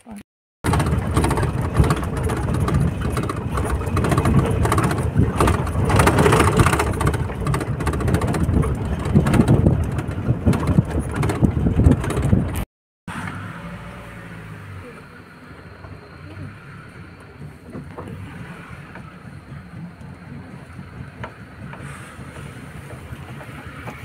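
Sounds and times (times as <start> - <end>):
jeep engine and road rumble: 0.6 - 24.0
wind noise on microphone: 0.7 - 12.7.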